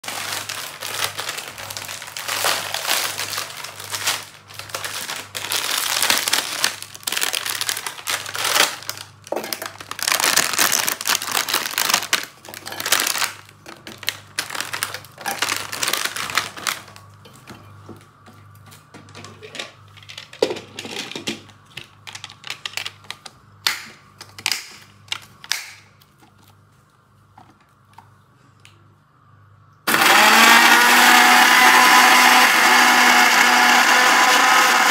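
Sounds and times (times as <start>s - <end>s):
plastic wrapper crinkling: 0.0s - 17.4s, 18.5s - 23.4s.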